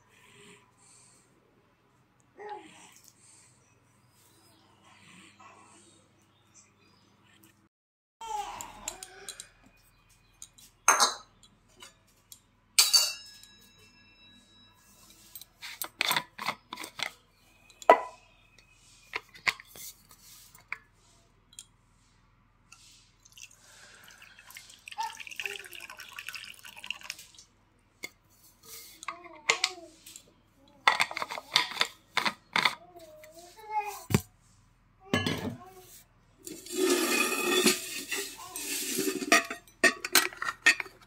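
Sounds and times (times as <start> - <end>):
metal kitchenware clinking: 10.4 - 12.1, 12.8 - 14.3, 35.1 - 35.6, 36.5 - 41.0.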